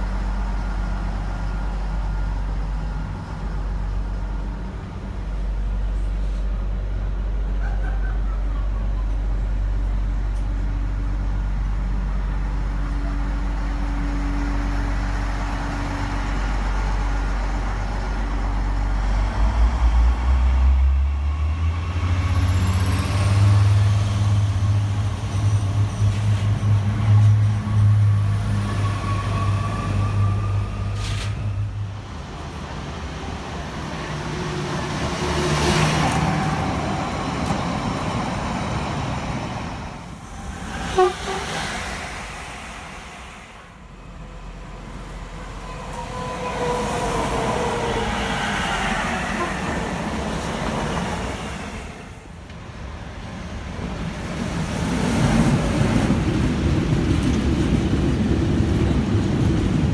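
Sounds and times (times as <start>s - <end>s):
electric trains passing: 0.0s - 59.9s.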